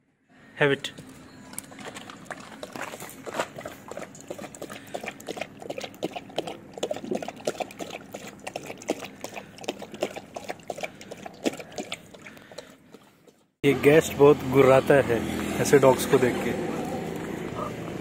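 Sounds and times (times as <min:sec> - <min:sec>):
dog lapping water from metal bowl: 0:01.6 - 0:13.4.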